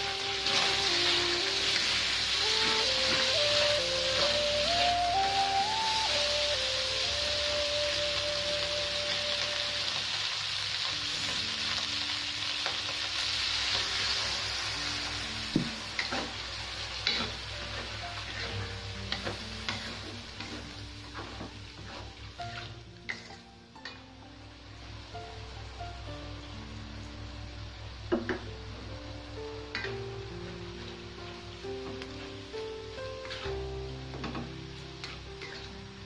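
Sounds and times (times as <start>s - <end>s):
food sizzling in a wok: 0.0s - 36.0s.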